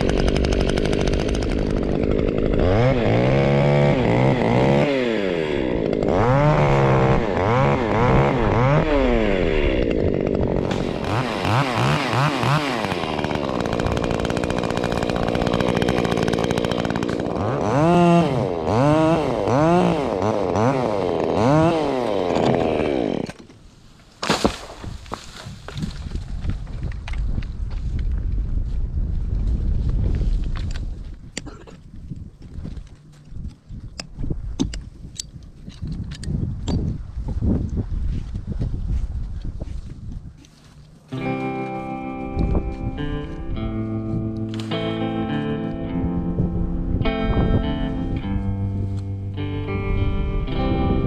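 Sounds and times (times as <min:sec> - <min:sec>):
chainsaw revving and cutting: 0:00.0 - 0:23.5, 0:41.1 - 0:45.6.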